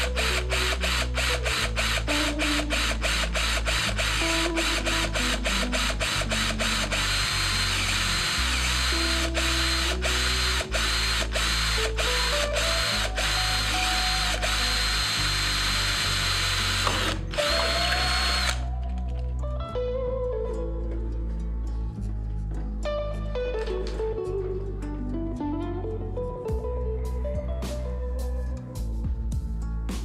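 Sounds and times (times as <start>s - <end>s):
electric drill whining in pulses: 0.0s - 18.7s
background music: 0.0s - 30.0s.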